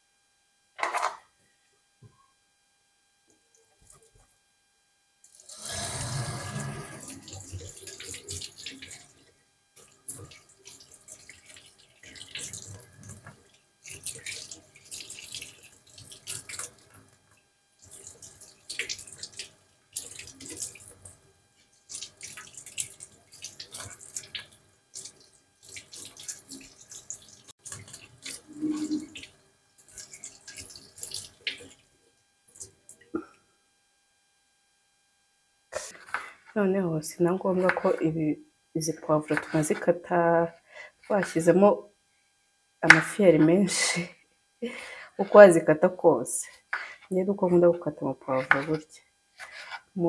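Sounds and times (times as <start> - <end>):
water splashing on vegetables: 7.0 - 17.0, 17.8 - 21.2, 21.9 - 31.8.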